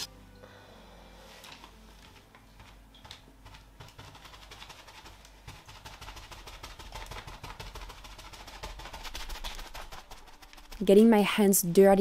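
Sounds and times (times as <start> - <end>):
sponge patting plaster wall: 2.6 - 12.0.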